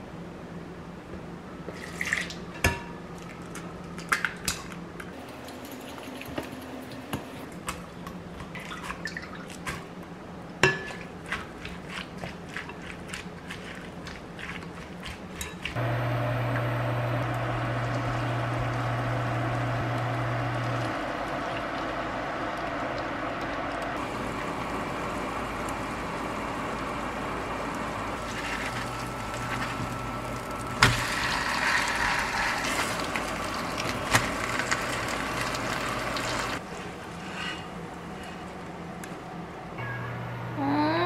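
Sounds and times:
low steady hum: 12.6 - 41.0
batter sizzling in a frying pan: 27.4 - 36.6.

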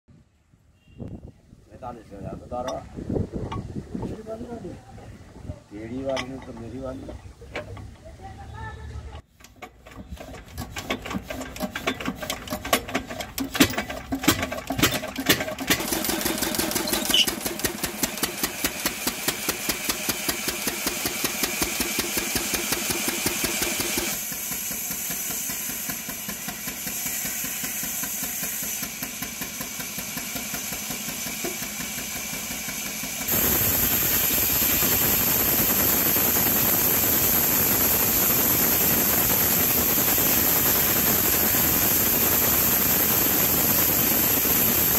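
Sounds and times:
band saw cutting log: 9.6 - 32.0
diesel engine running: 9.8 - 44.9.

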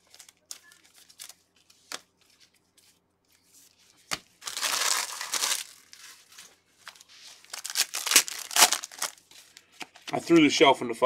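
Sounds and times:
foil wrapper crinkling: 4.4 - 9.7.

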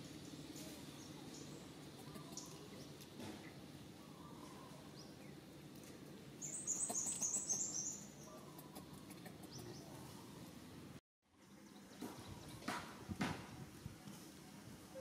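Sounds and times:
bird chirping: 6.4 - 10.4.

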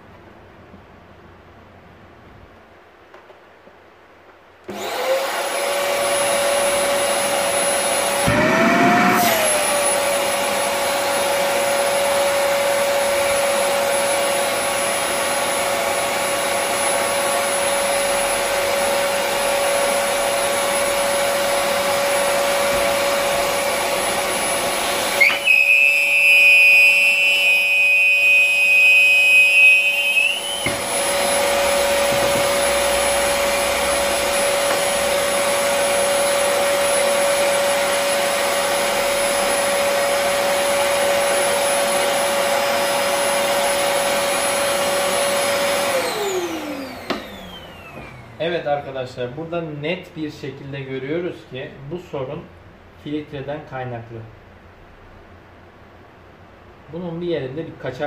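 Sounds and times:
vacuum cleaner running: 4.7 - 49.0
high-pitched whistle: 25.2 - 30.7.

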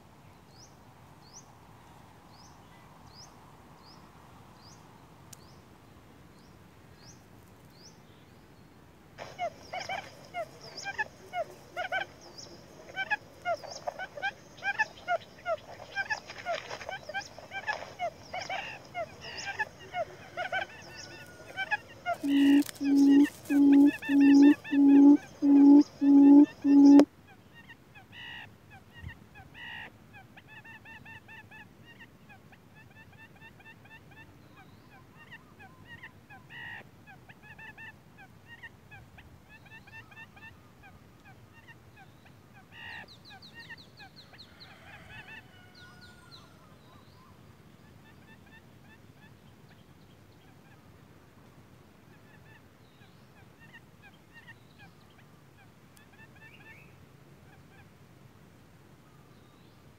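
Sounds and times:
waterhen calling: 9.2 - 27.1.

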